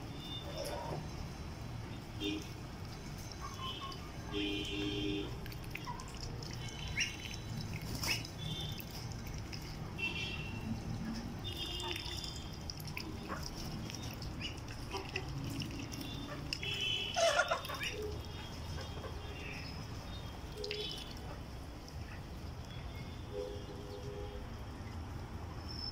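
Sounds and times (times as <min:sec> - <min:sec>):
chickens and ducks chirping: 0:13.2 - 0:15.3, 0:17.2 - 0:20.1.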